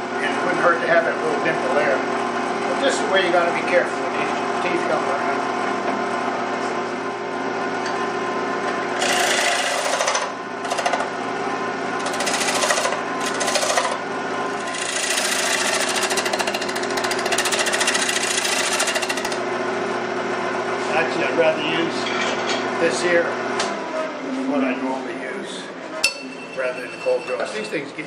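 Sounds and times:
lathe humming: 8.7 - 22.0
gouge cutting wood: 9.0 - 11.0, 12.0 - 19.4.

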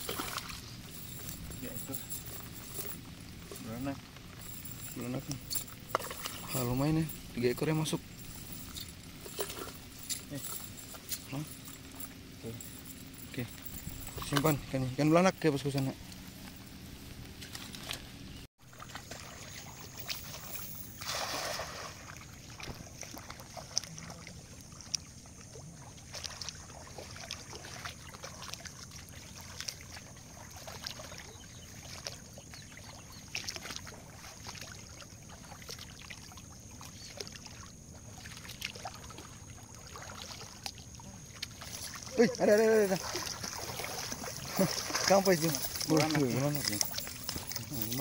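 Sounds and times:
splashing steps in water: 0.0 - 3.6, 18.7 - 25.1, 26.0 - 48.0
thin high tone: 0.0 - 16.7
faint wash of water: 18.6 - 48.0.

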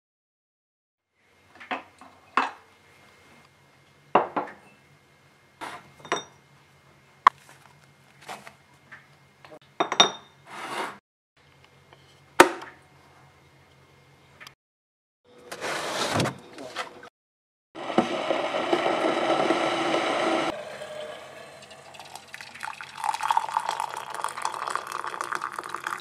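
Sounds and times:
ceramic mugs clinking: 20.6 - 26.0.

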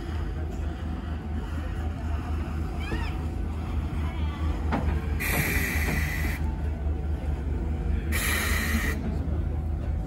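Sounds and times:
locomotive hissing air bursts: 5.2 - 6.4, 8.1 - 9.0.

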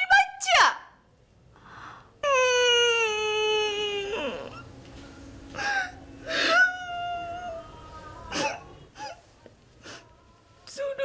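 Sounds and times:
woman crying and wailing: 2.2 - 4.6, 5.6 - 9.3
sobbing breaths: 5.5 - 10.4.

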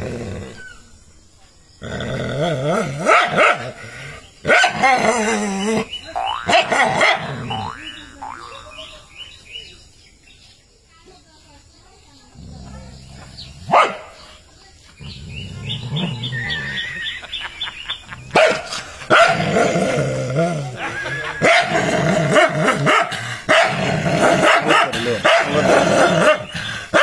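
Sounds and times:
dog growling: 1.8 - 4.0, 15.0 - 16.7, 18.7 - 27.0
dog barking and snarling: 1.8 - 5.9, 6.5 - 7.8, 12.4 - 14.2, 18.3 - 20.8, 21.4 - 27.0.

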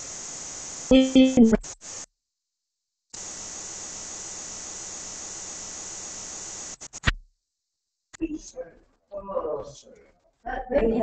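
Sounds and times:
static hiss: 0.0 - 2.1, 3.2 - 7.2.

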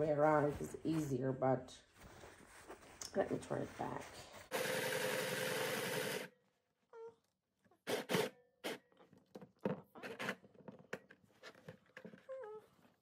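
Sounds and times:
fabric rustling: 1.9 - 4.5
sewing machine running: 4.5 - 6.3.

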